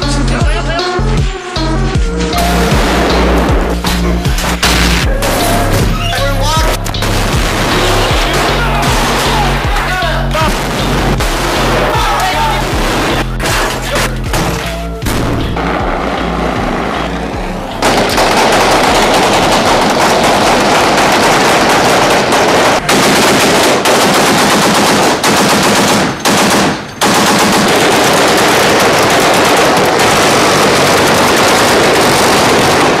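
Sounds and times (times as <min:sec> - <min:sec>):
automatic gunfire: 0:17.8 - 0:33.0.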